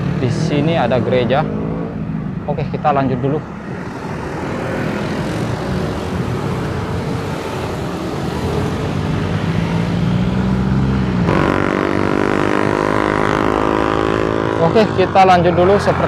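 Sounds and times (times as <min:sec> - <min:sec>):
cars and motorcycles passing: 0:00.0 - 0:16.0
steady engine hum: 0:00.0 - 0:16.0
engine tone with overtones: 0:08.8 - 0:16.0.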